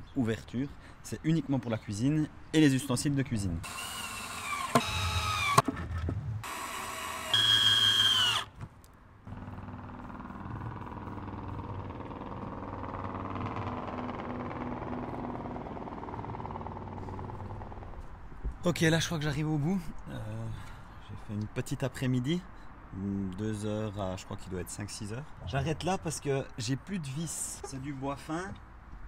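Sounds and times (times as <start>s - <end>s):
cordless drill driving screws: 3.6s - 5.6s, 6.4s - 8.5s.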